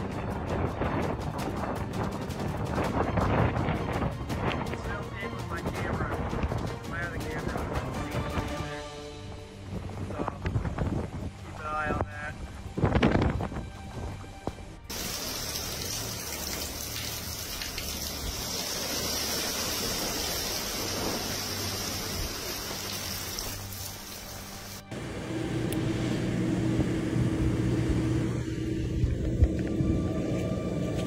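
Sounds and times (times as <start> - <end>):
background music: 0.0 - 27.7
wind: 0.0 - 31.0
steady rain: 14.9 - 25.4.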